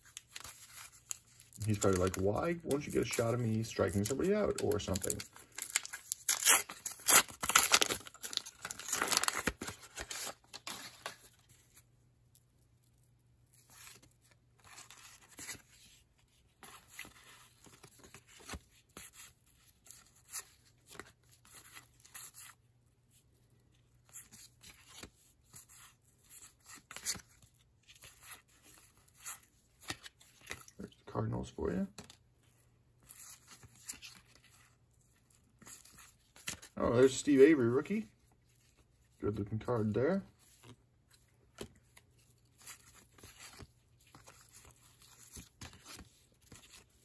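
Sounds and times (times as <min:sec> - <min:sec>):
cards rustling and clicking: 0:00.0 - 0:22.6, 0:23.3 - 0:47.0
foil wrapper tearing and crinkling: 0:00.2 - 0:11.3.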